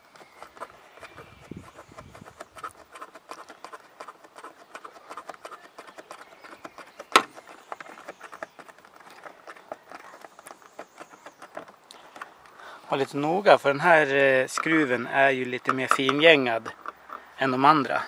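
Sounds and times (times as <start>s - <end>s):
screw turning clicks and scratching: 0.1s - 6.6s, 14.2s - 17.3s.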